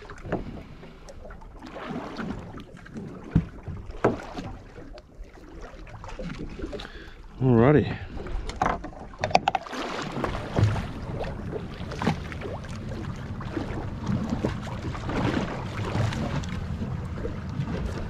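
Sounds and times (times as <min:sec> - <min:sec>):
water slapping against boat hull: 0:00.0 - 0:07.4, 0:08.0 - 0:18.0
low rumble: 0:10.3 - 0:18.0.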